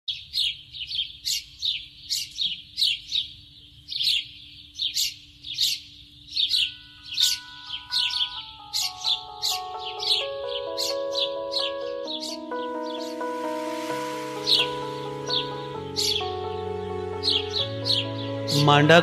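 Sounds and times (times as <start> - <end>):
bird chirping: 0.1 - 19.0
held musical notes: 6.7 - 19.0.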